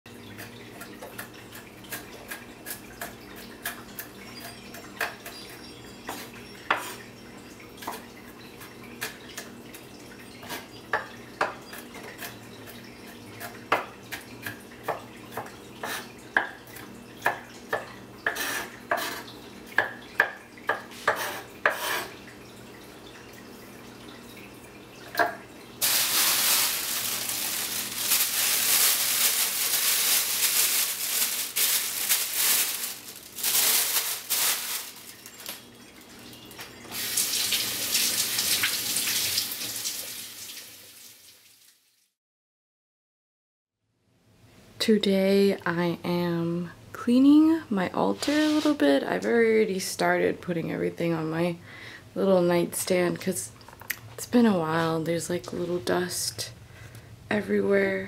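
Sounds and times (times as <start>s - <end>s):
faint steady hum: 48.8s - 58.0s.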